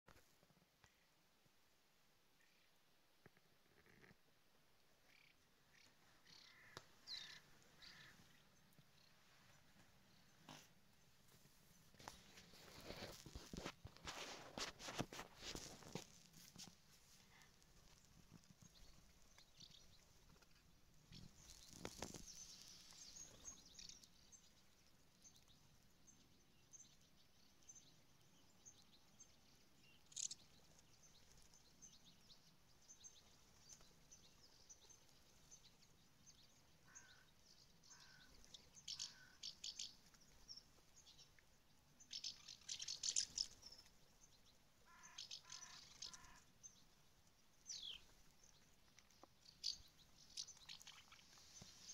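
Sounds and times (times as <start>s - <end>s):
house martins chirping: 29.9s - 47.0s, 47.6s - 51.9s.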